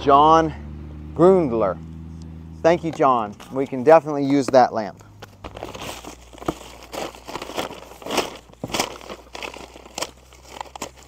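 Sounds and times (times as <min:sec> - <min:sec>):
plastic bag crinkling: 0:05.3 - 0:11.0.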